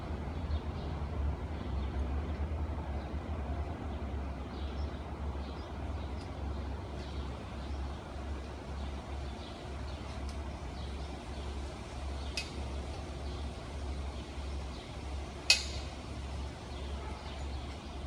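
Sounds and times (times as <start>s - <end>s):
low street rumble: 0.0s - 18.0s.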